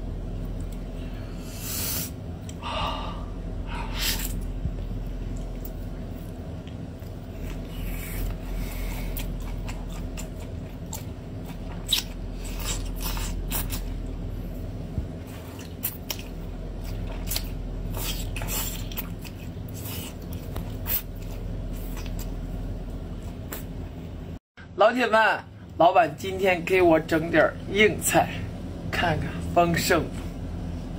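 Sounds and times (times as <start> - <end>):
low steady hum: 0.0 - 30.9
wet sucking and slurping: 1.4 - 2.2, 7.3 - 11.1, 16.9 - 22.3
chewing: 4.2 - 14.2, 15.2 - 22.4.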